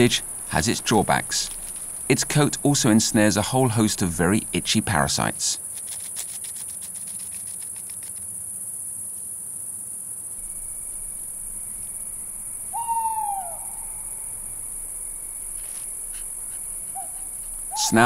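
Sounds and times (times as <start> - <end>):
crickets chirring: 0.0 - 18.0
hedgehog scratching: 5.6 - 8.3, 14.7 - 17.8
owl call: 11.3 - 18.0.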